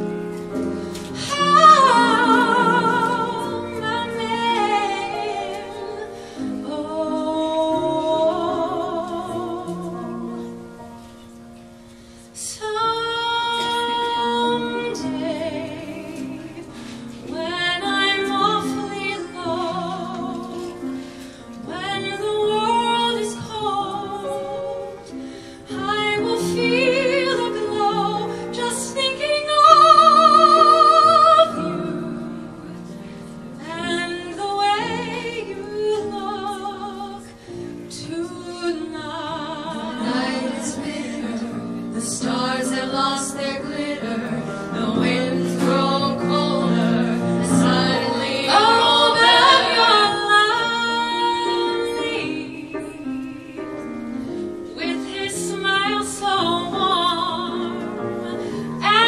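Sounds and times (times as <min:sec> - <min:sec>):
piano chords: 0:00.0 - 0:59.0
woman singing with vibrato: 0:01.2 - 0:10.4, 0:25.7 - 0:32.6, 0:33.6 - 0:53.6, 0:54.8 - 0:59.0.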